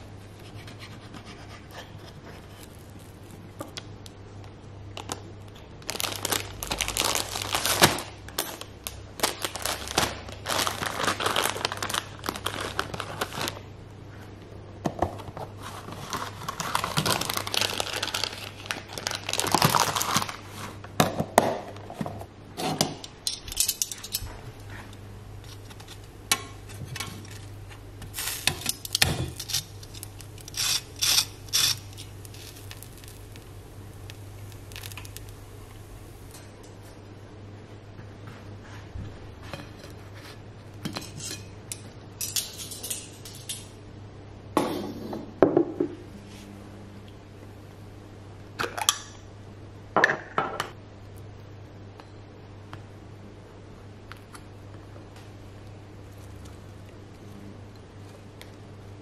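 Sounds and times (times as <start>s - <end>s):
low steady hum: 0.0s - 59.0s
plastic bag crinkling: 2.4s - 3.5s, 5.8s - 13.7s, 15.6s - 20.7s, 27.2s - 36.4s.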